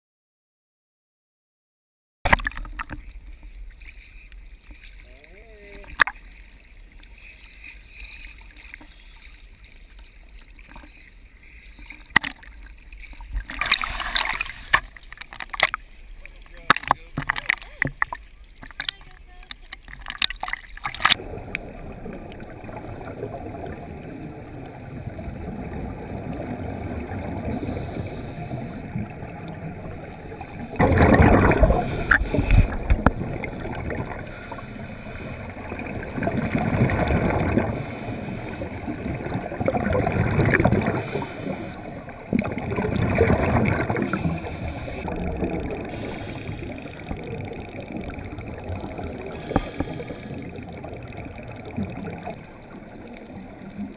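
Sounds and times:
muffled underwater ambience: 0:02.3 - 0:53.9.

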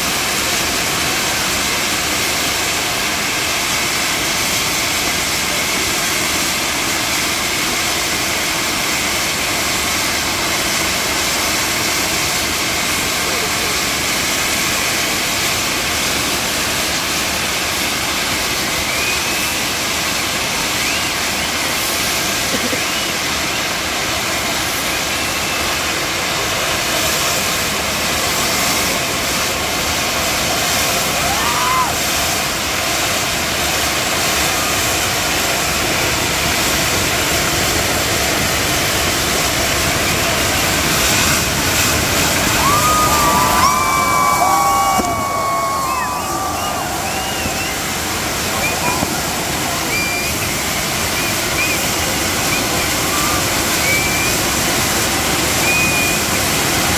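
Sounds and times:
fireworks hissing rush: 0:00.0 - 0:56.9
faint short whistles: 0:18.8 - 0:19.8, 0:20.7 - 0:21.6, 0:42.7 - 0:54.6, 0:55.5 - 0:56.3.

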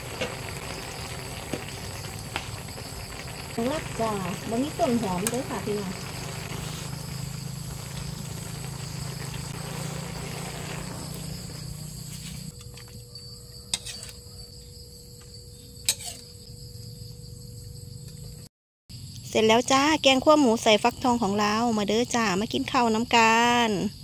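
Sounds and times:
curry simmering: 0:00.0 - 0:13.0
insects trilling: 0:00.0 - 0:24.0
ladle stirring a wok: 0:13.7 - 0:14.2, 0:15.9 - 0:16.2.

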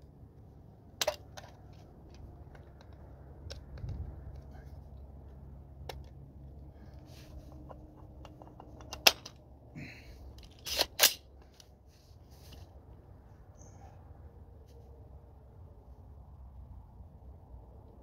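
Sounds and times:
rifle handling ticks: 0:01.0 - 0:04.5
sharp metallic click: 0:10.6 - 0:11.3.

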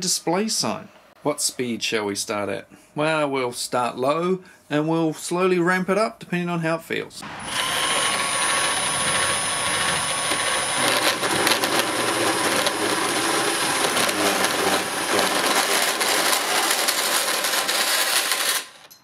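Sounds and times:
bandsaw cutting through metal: 0:07.2 - 0:19.0.

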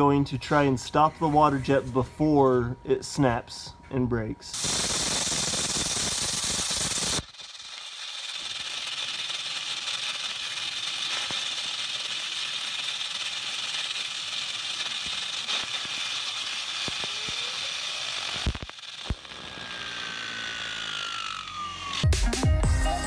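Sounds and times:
waterjet hissing: 0:04.5 - 0:21.1
spray rattling in a tank: 0:04.6 - 0:19.0
wheel spinning down whine: 0:04.6 - 0:22.1.

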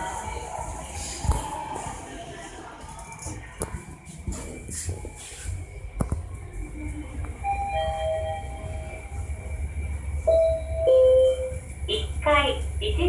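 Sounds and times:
elevator humming: 0:00.0 - 0:13.0
elevator arrival chime: 0:07.4 - 0:12.2.

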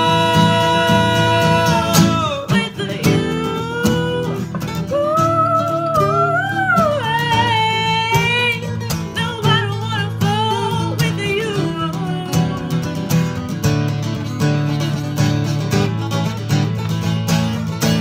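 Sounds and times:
woman singing: 0:00.0 - 0:13.3
acoustic guitars strummed: 0:00.0 - 0:18.0.

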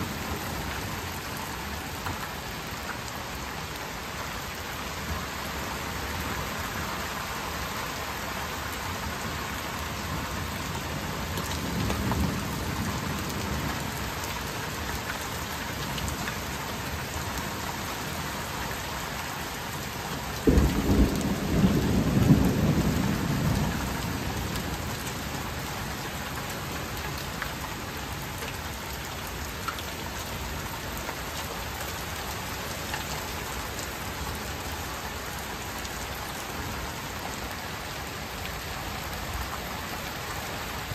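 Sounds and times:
heavy rain falling: 0:00.0 - 0:40.9
thunder rumbling: 0:20.4 - 0:25.6
loud thunderclap: 0:20.5 - 0:24.4.

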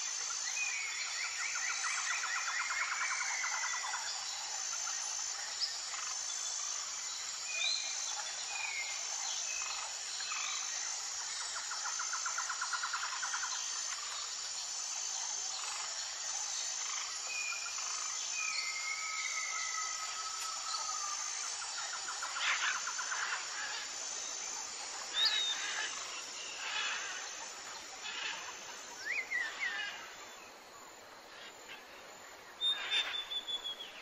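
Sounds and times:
insect chorus: 0:00.0 - 0:34.0
birds whistling and calling: 0:25.1 - 0:25.9, 0:32.6 - 0:34.0.

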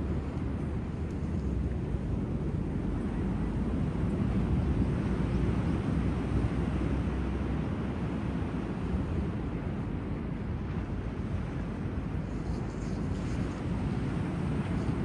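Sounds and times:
waves on sandy beach: 0:03.2 - 0:15.0.

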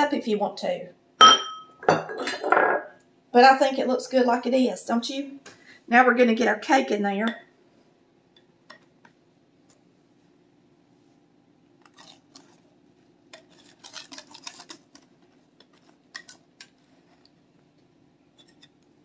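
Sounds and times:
utensil scraping batter from bowl: 0:13.3 - 0:17.3.

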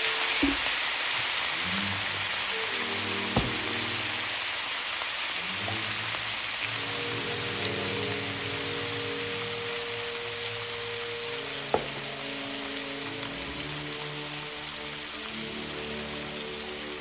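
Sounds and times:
food sizzling in a skillet: 0:00.0 - 0:17.0
soft background music: 0:01.5 - 0:04.5, 0:05.4 - 0:17.0.

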